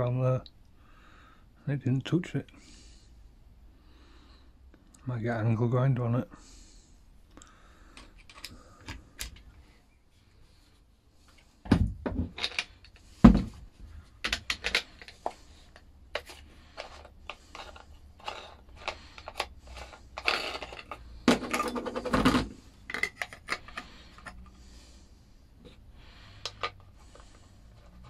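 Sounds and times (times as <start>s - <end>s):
angle grinder parts clinking: 16.2s - 21.9s.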